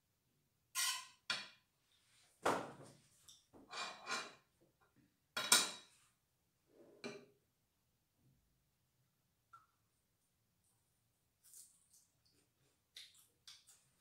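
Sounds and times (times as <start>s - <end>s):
metal utensil scraping a frying pan: 0.8s - 1.2s, 3.7s - 4.4s.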